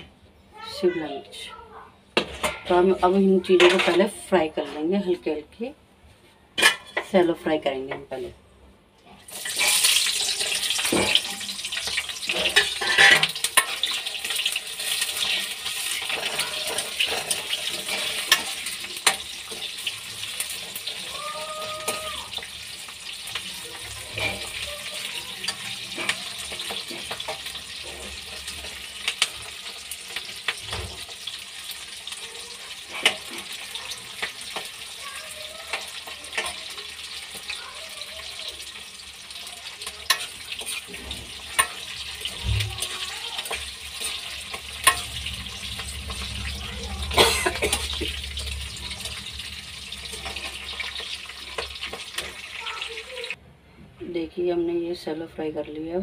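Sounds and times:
onions sizzling in hot oil: 0:09.1 - 0:53.4.

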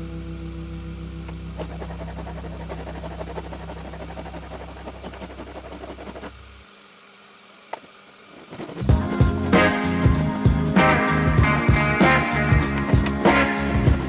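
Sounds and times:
guitar music: 0:00.0 - 0:01.6, 0:08.9 - 0:14.0
low steady hum: 0:00.0 - 0:14.0
hand sanding wood: 0:01.6 - 0:06.4, 0:08.3 - 0:11.3, 0:12.0 - 0:14.0.

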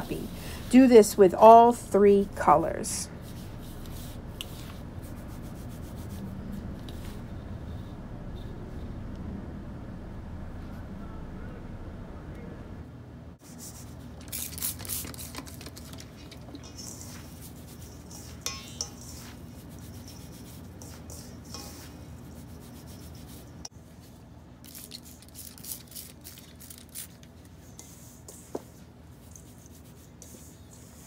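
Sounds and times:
gritty powder scraping in metal bowl: 0:13.5 - 0:23.7, 0:24.7 - 0:31.0.

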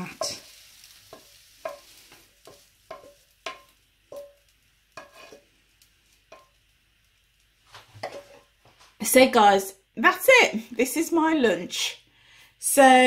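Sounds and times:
spatula tapping a frying pan: 0:00.0 - 0:05.4, 0:06.2 - 0:06.7, 0:08.0 - 0:08.4.

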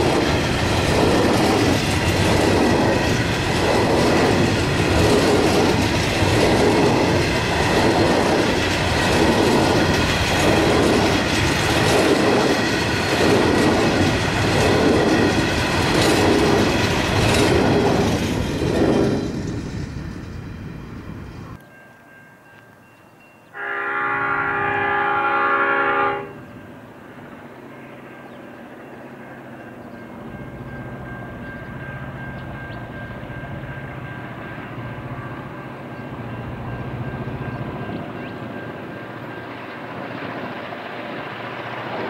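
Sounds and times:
train wagons clattering on track: 0:00.0 - 0:21.7, 0:28.2 - 0:42.0.

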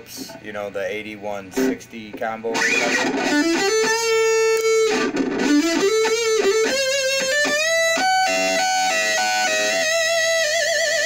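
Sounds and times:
distorted electric guitar lead: 0:01.6 - 0:01.8, 0:02.5 - 0:11.0.

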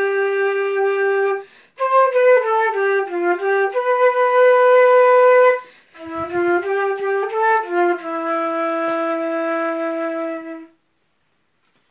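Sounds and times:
solo flute playing: 0:00.0 - 0:10.8
person breathing: 0:01.4 - 0:01.8, 0:05.6 - 0:06.0.

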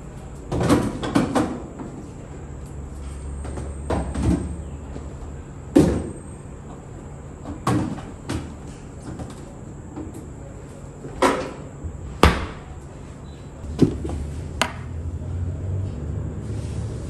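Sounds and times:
containers knocking: 0:13.7 - 0:14.9.

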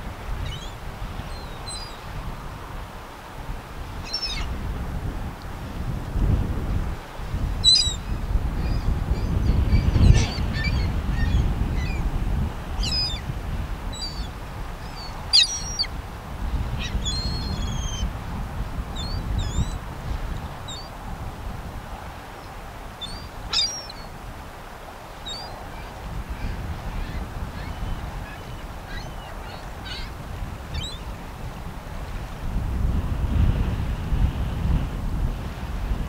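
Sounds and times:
small birds chirping: 0:04.1 - 0:04.5, 0:07.6 - 0:12.0, 0:12.8 - 0:13.2, 0:13.9 - 0:15.9, 0:16.8 - 0:18.1, 0:19.0 - 0:19.8, 0:20.7 - 0:20.9, 0:23.0 - 0:24.1, 0:25.2 - 0:25.6, 0:27.0 - 0:30.1, 0:30.7 - 0:31.1.

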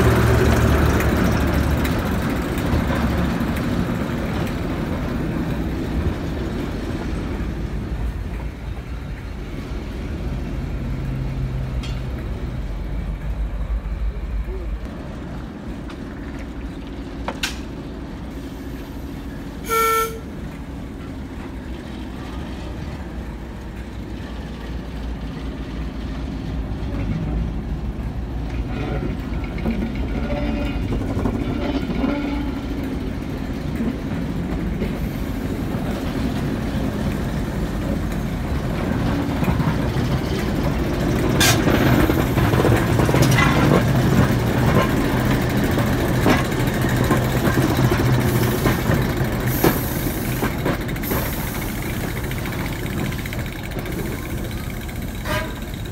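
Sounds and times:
diesel locomotive engine running: 0:00.0 - 0:55.9
train horn toot: 0:19.6 - 0:20.3, 0:30.1 - 0:32.7, 0:55.2 - 0:55.8.

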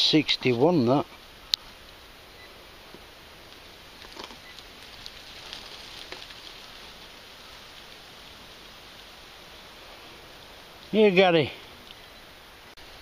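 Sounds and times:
rustling and scratching: 0:03.4 - 0:09.1.

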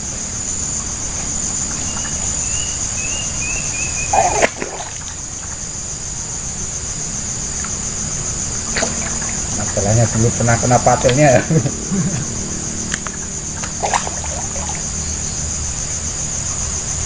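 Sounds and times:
high insect chorus: 0:00.0 - 0:17.0
fish splashing at the surface: 0:04.1 - 0:05.2, 0:08.7 - 0:09.6, 0:13.0 - 0:15.0.

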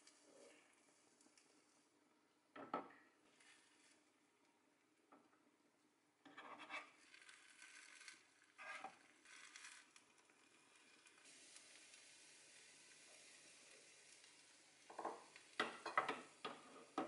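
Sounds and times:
egg sizzling in a pan: 0:03.2 - 0:04.3, 0:06.4 - 0:17.0
spatula scraping a pan: 0:06.2 - 0:10.0.

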